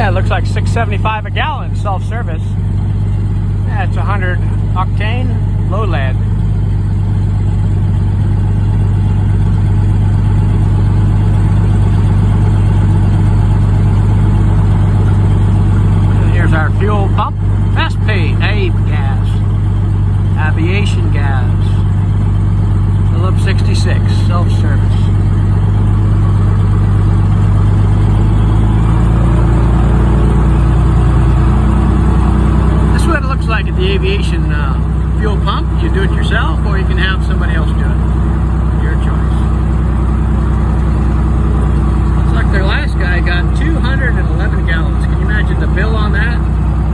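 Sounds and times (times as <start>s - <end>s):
propeller plane engine drone: 0.0s - 46.9s.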